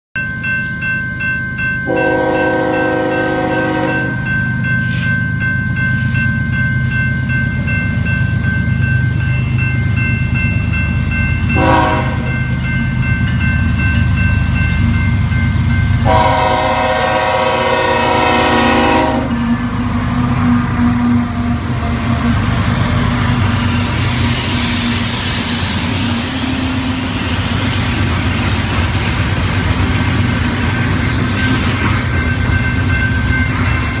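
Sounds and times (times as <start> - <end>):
crossing bell ringing: 0.2 - 34.0
train wheels on rails: 0.2 - 34.0
locomotive air horn blasts: 1.9 - 4.2, 11.6 - 12.4, 16.0 - 19.6
diesel locomotive rumble: 1.9 - 34.0.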